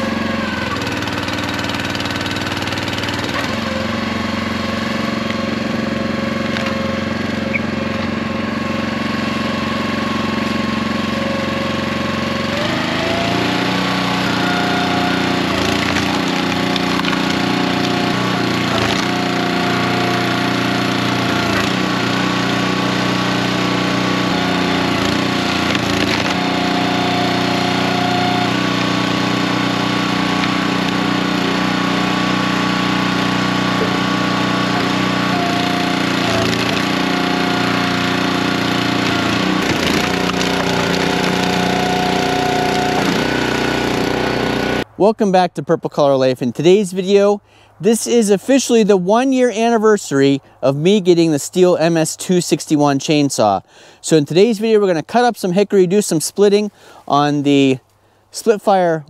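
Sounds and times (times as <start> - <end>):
small gasoline engine running: 0.0 - 44.9.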